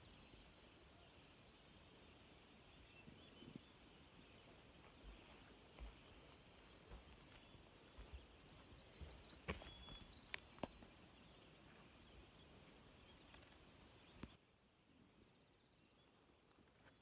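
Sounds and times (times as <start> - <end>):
songbird singing: 0.0 - 17.0.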